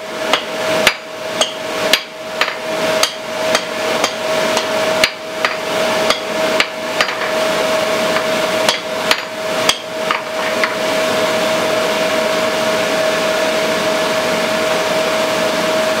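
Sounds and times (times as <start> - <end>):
steady hum and hiss: 0.0 - 16.0
hammer striking hot steel on anvil: 0.3 - 7.4, 8.2 - 10.8.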